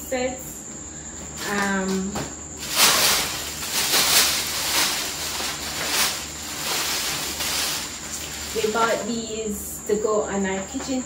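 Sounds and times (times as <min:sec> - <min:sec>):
packaging rustling and crinkling: 0:02.6 - 0:09.1.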